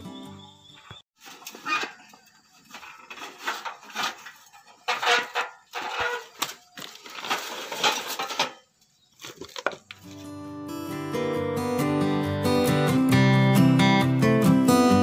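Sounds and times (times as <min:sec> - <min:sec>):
steel pipes clinking and knocking: 0:01.4 - 0:08.7.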